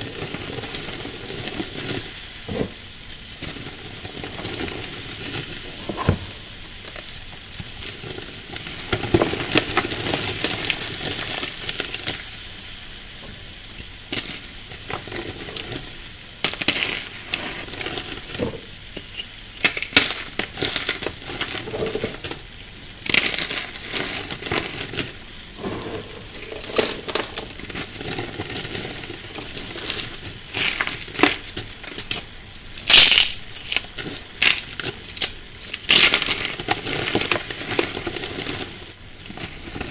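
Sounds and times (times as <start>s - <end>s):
chalk chunks crunching: 23.0s - 39.9s
chalk powder hissing: 23.4s - 31.2s.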